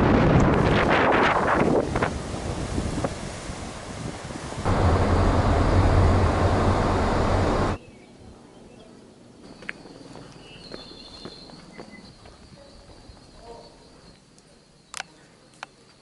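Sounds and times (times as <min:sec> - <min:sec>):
breaking surf: 0:00.0 - 0:07.8
wind buffeting microphone: 0:00.0 - 0:07.8
car road noise inside cabin: 0:04.6 - 0:07.8.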